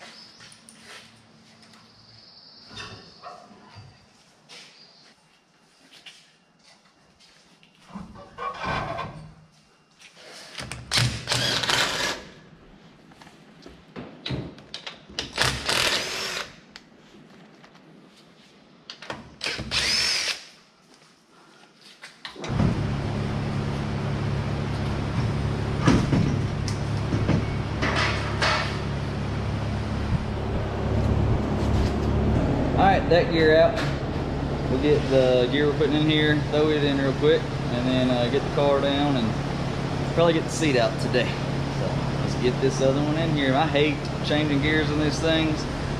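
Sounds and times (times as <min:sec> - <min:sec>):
power tool bursts: 0:10.9 - 0:12.4, 0:15.4 - 0:16.6, 0:19.4 - 0:20.5
steady machine hum: 0:22.5 - 0:45.9.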